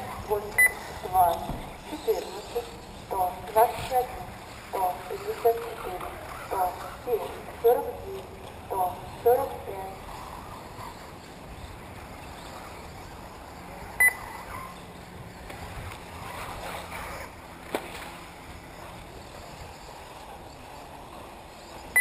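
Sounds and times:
outdoor background noise: 0.0s - 22.0s
short sharp beep: 14.0s - 14.2s.

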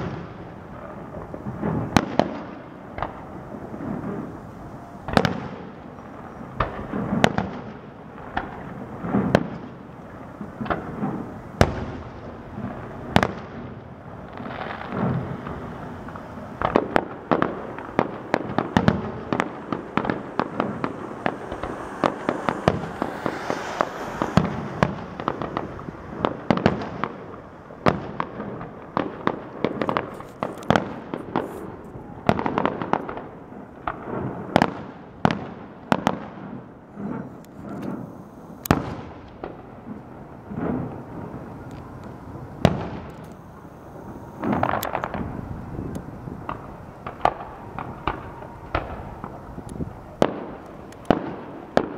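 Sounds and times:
fireworks bangs and crackling: 0.0s - 51.9s.

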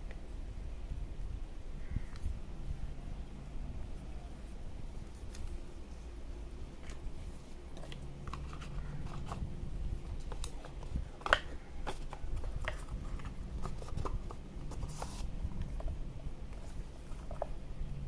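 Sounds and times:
cardboard tapping and scraping: 10.1s - 17.6s.

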